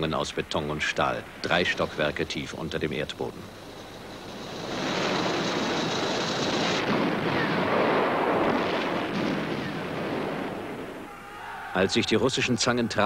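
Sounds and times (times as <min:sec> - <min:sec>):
faint high whine: 0:00.0 - 0:08.4
tank engine and tracks rumbling: 0:03.0 - 0:11.0.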